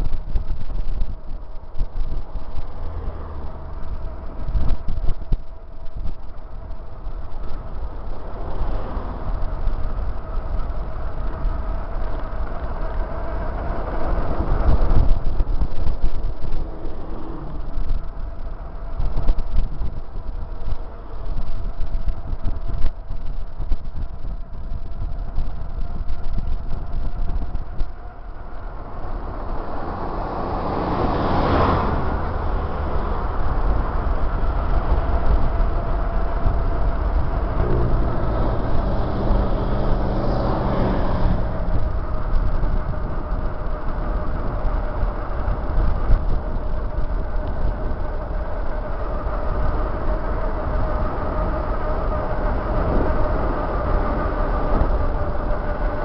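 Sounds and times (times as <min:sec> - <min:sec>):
bicycle tyre noise: 0:00.0 - 0:56.0
low rumble: 0:00.0 - 0:56.0
vehicles passing: 0:00.0 - 0:56.0
wind on microphone: 0:00.0 - 0:56.0
heavy vehicle engine passing: 0:28.2 - 0:44.3.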